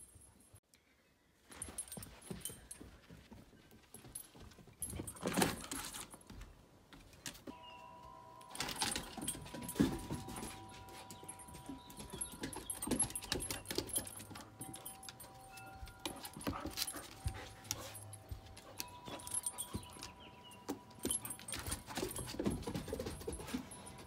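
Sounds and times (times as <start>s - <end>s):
dog collar jingling: 1.5s - 6.4s, 7.2s - 24.0s
dog moving with scuffs and knocks: 8.5s - 24.0s.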